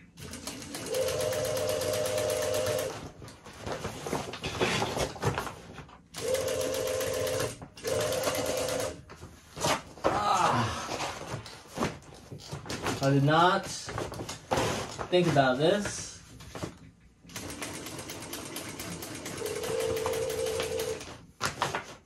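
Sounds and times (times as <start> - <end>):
industrial sewing machine stitching: 0.0 - 3.0, 6.2 - 9.0, 17.3 - 21.1.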